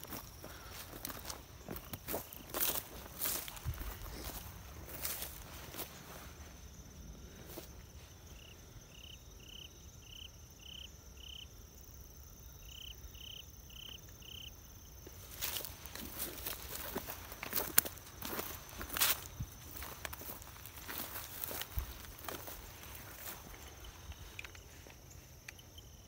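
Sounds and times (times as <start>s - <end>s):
footsteps on grass and dry leaves: 0.0s - 8.4s, 15.0s - 25.8s.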